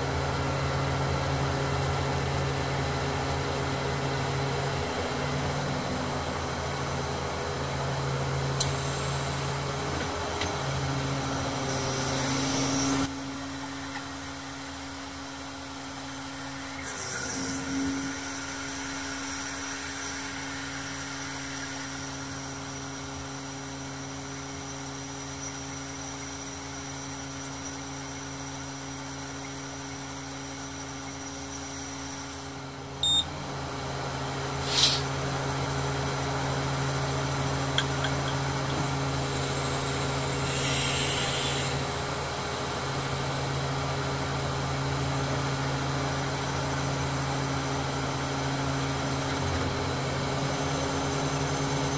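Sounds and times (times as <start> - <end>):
diesel engine humming: 28.9 - 51.9
high beep: 33.0 - 33.3
short hiss: 34.6 - 35.1.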